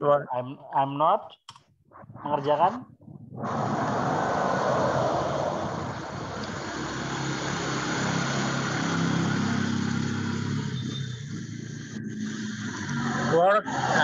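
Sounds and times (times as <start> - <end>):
motorcycle traffic engine hum: 3.4 - 14.0.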